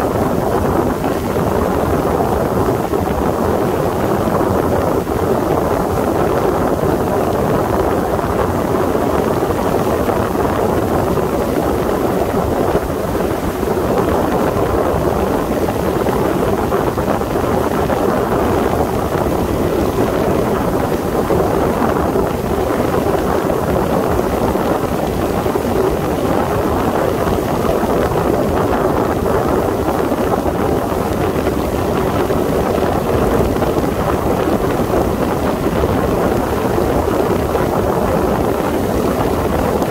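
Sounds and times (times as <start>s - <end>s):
rushing water: 0.0s - 39.9s
wind buffeting microphone: 0.0s - 39.9s.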